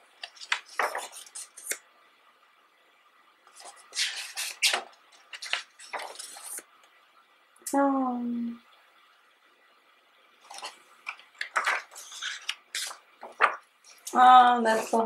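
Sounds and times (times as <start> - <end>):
book pages turning: 0.2 - 1.8, 3.5 - 6.7, 10.4 - 15.0.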